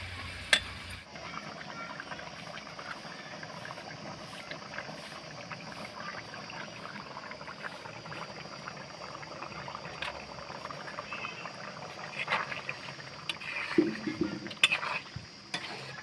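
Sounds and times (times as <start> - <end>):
thick gravy bubbling: 0.0 - 16.0.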